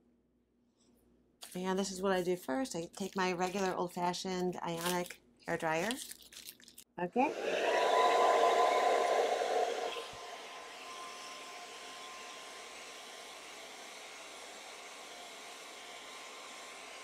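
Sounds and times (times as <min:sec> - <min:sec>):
hair dryer running: 0:07.2 - 0:17.0.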